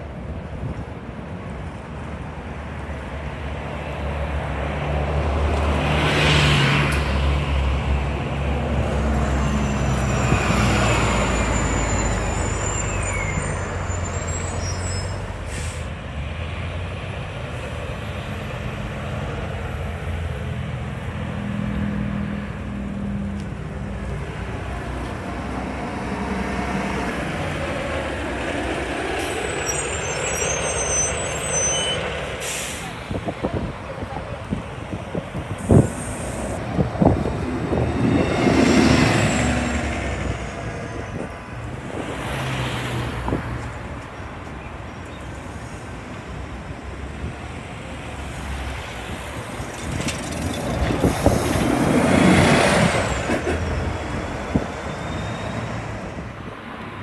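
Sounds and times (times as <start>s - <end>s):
buses driving past: 0.0s - 57.0s
air brake hiss: 15.4s - 16.0s, 32.4s - 33.0s.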